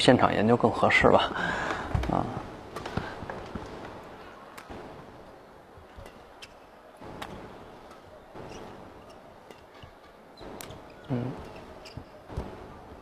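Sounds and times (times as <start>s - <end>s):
faint arena background: 0.0s - 13.0s
racket hitting shuttlecock: 5.7s - 12.7s.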